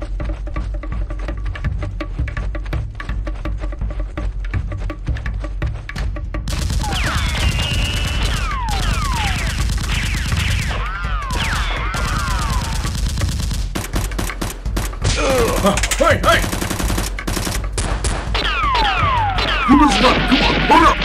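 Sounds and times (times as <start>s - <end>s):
gunshot bursts: 6.5s - 21.0s.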